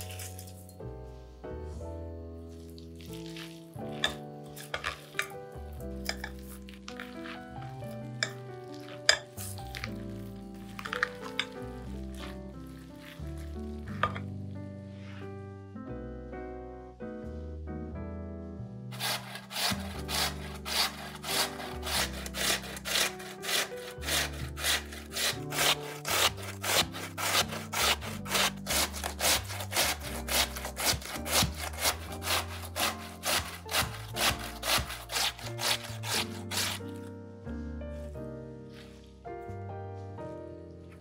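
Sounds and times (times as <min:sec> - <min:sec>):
background music: 0:00.0 - 0:41.0
potato rasping on grater: 0:19.0 - 0:36.9.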